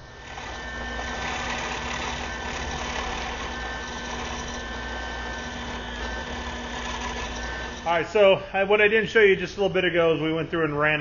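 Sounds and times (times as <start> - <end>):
drill press boring into wood: 0.0 - 8.4.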